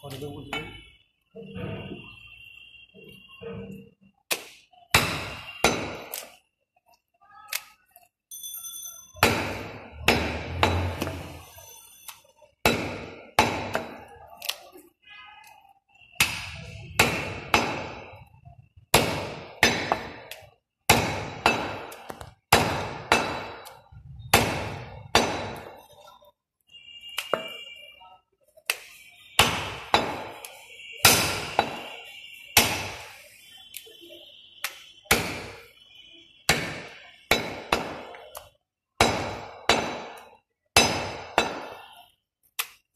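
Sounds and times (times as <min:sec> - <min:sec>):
cleaver chopping meat on wood block: 0:04.3 - 0:06.3, 0:09.2 - 0:11.2, 0:12.6 - 0:14.1, 0:16.2 - 0:18.1, 0:18.9 - 0:25.7, 0:29.4 - 0:31.9, 0:32.6 - 0:33.0, 0:34.6 - 0:35.6, 0:36.5 - 0:41.8.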